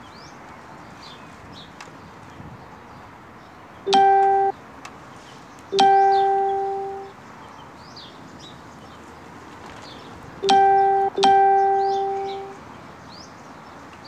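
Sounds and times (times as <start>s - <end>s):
faint high chirps: 3.9s - 4.5s, 5.7s - 7.1s, 10.4s - 12.6s
ringing musical note: 3.9s - 4.5s, 5.8s - 7.1s, 10.4s - 12.6s.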